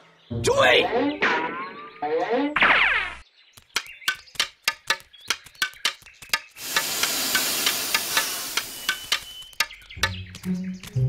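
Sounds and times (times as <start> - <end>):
steam vent hissing: 6.6 - 9.3.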